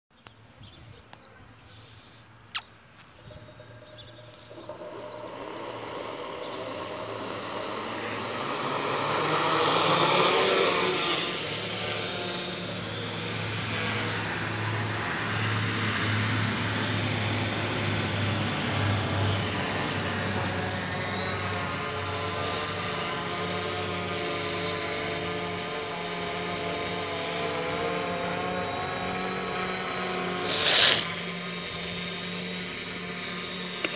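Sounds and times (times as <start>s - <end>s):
quadcopter motors buzzing: 1.7s - 33.9s
sharp click: 2.5s - 3.1s.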